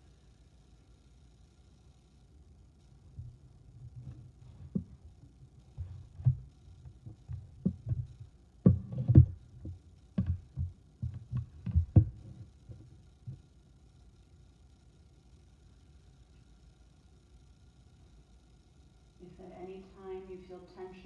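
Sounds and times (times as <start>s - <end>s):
low thumps and bumps: 3.2s - 13.4s
sharp knocks: 5.8s - 12.8s.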